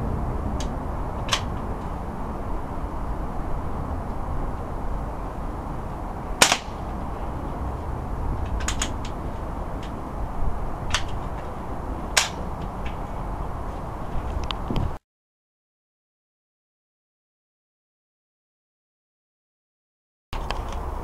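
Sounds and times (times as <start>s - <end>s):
low background rumble: 0.0s - 15.0s
air rifle firing: 6.4s - 6.9s.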